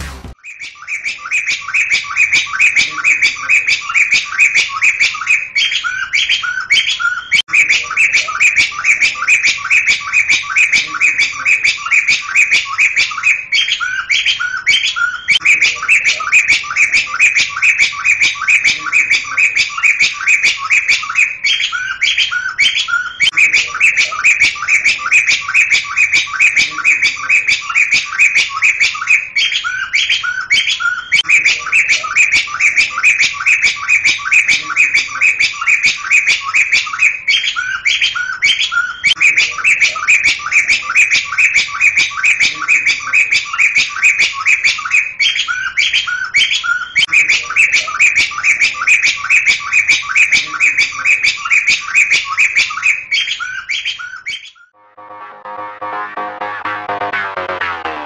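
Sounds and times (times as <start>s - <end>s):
bird chattering calls: 0.0s - 54.7s
bird lower-note phrase: 54.8s - 58.0s.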